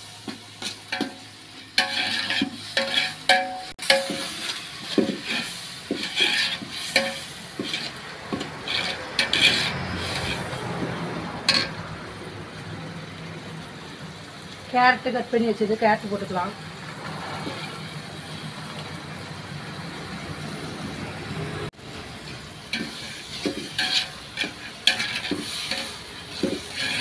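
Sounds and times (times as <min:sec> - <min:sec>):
frying sizzle: 0:00.0 - 0:27.0
metal ladle scraping pot: 0:00.6 - 0:11.9, 0:22.3 - 0:27.0.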